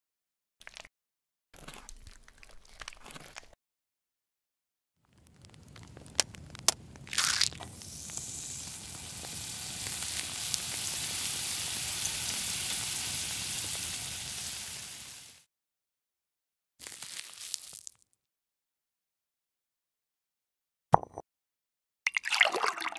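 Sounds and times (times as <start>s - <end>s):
food crackling in a pan: 5.0s - 15.5s, 16.8s - 18.0s
bacon sizzling: 5.2s - 15.5s, 16.8s - 18.0s.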